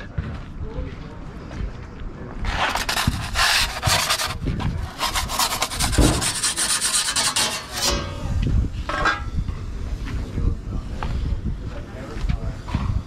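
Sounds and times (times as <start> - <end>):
metal peel scraping on stone: 2.5 - 8.2.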